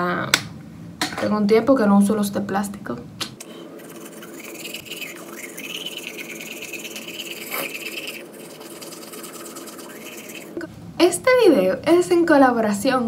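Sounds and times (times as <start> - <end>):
toothbrush scrubbing teeth: 3.4 - 10.7.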